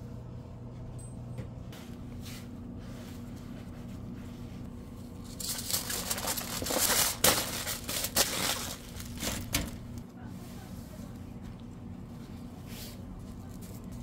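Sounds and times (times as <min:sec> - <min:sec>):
aluminium foil crinkling: 0:05.2 - 0:10.0.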